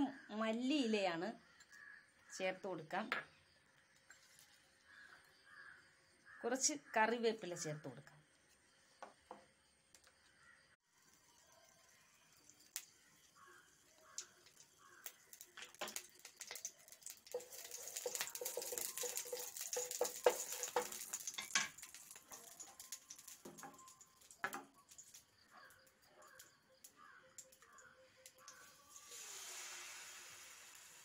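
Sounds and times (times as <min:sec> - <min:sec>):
oil sizzling in a pan: 0:10.9 - 0:25.6, 0:28.2 - 0:31.0
steel spoon scraping a pan: 0:17.3 - 0:23.3.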